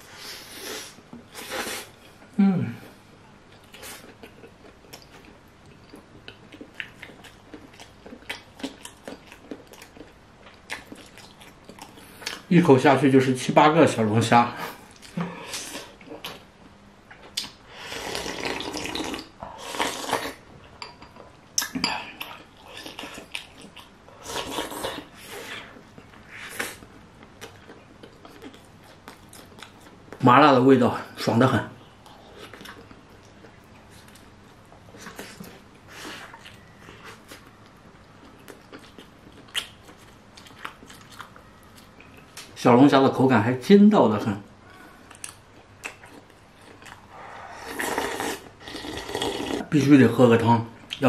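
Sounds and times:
person chewing food: 0:03.1 - 0:12.5, 0:14.7 - 0:30.2, 0:32.0 - 0:42.5, 0:44.8 - 0:49.7
person slurping soup: 0:17.8 - 0:20.4, 0:47.1 - 0:49.7.

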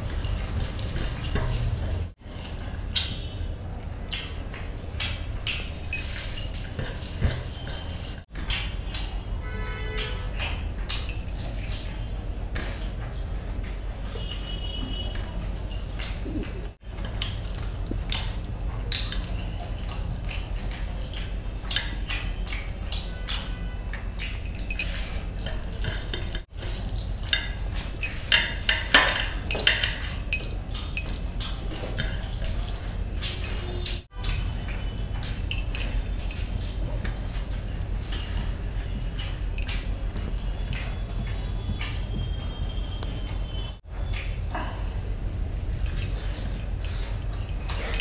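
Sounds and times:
light clinks: 0:00.0 - 0:09.2, 0:10.0 - 0:48.0
wet chewing and lip smacking: 0:15.5 - 0:25.8.

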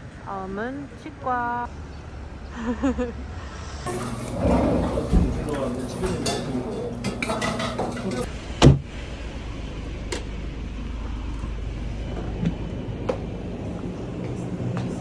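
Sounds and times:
traffic rumble: 0:00.0 - 0:15.0
loud thump: 0:08.6 - 0:09.0.

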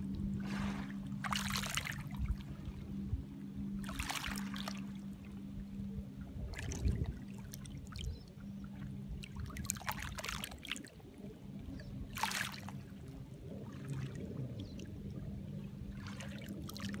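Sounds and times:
steady low hum: 0:00.0 - 0:17.0
waves lapping on pebbles: 0:00.4 - 0:02.2, 0:12.1 - 0:12.8.

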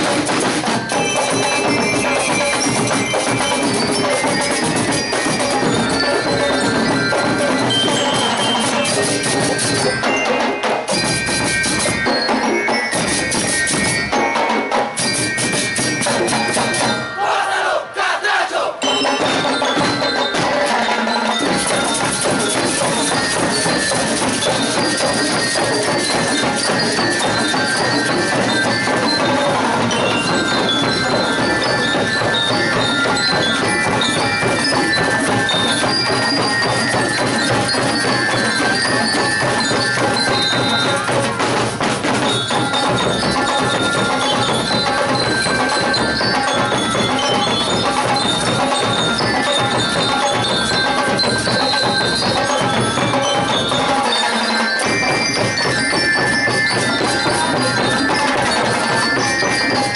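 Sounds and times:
hand drums: 0:00.0 - 0:17.2, 0:18.8 - 0:59.9
snare drums: 0:00.0 - 0:17.4, 0:18.8 - 0:59.9
bell lyres ringing melody: 0:00.0 - 0:17.8, 0:18.8 - 0:59.9.

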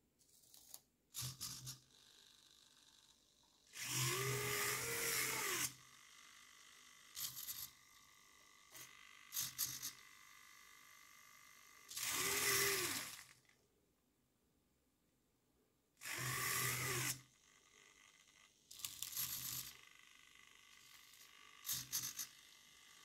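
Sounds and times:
servos whirring: 0:03.8 - 0:08.0, 0:08.6 - 0:13.4, 0:16.0 - 0:17.3, 0:18.7 - 0:23.0.

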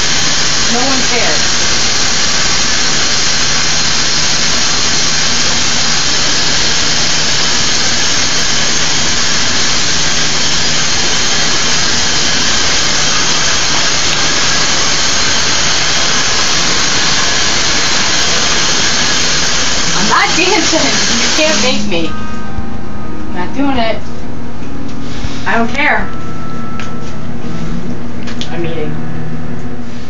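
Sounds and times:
loud rushing hiss: 0:00.0 - 0:22.0.

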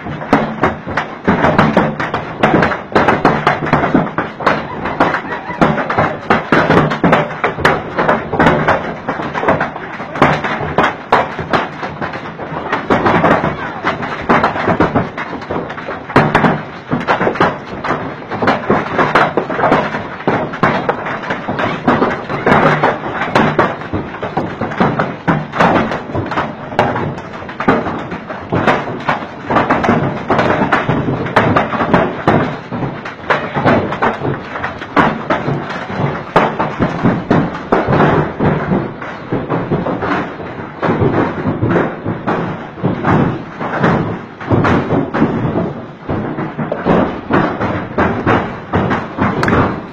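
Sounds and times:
heavy hail clattering: 0:00.0 - 0:49.9.

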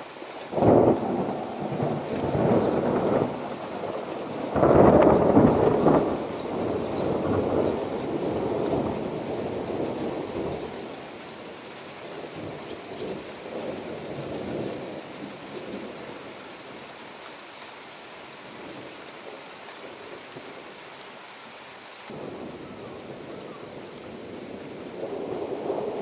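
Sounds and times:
steady rain: 0:00.0 - 0:26.0
thunder rumbling: 0:00.5 - 0:11.6, 0:22.1 - 0:26.0.

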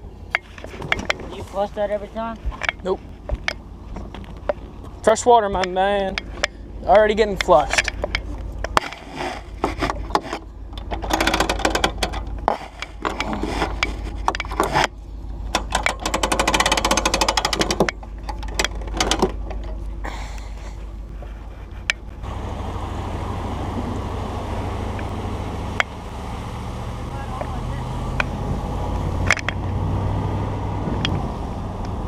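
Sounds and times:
vehicle drone: 0:00.0 - 0:32.0
fast run of clicks: 0:09.8 - 0:19.8.

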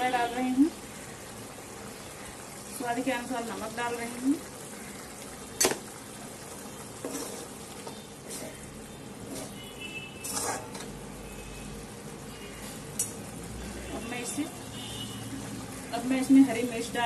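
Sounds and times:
gravy hissing in a pan: 0:00.0 - 0:17.0
ladle scraping a pan: 0:07.0 - 0:08.6, 0:09.2 - 0:10.9.

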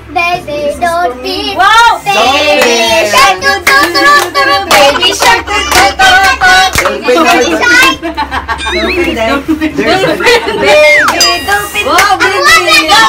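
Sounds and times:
child singing: 0:00.1 - 0:08.0, 0:10.6 - 0:13.0
steady clapping beat: 0:02.6 - 0:07.0.

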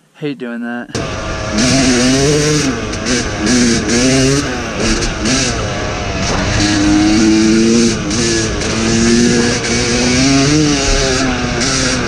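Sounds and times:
dirt bike engine: 0:00.9 - 0:12.0.

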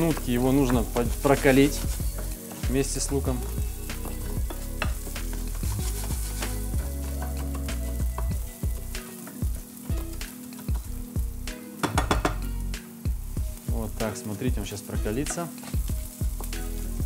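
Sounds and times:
wooden spatula scraping pan: 0:00.0 - 0:09.5
rice and onion sizzling in oil: 0:00.0 - 0:17.0.

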